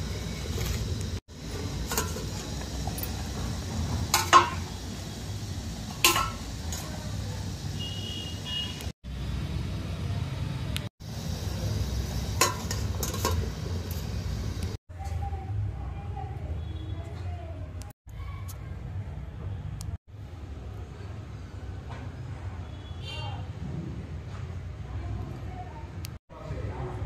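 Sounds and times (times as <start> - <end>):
steel lid clinking: 1.8 - 4.8, 5.9 - 7.1, 12.3 - 14.1.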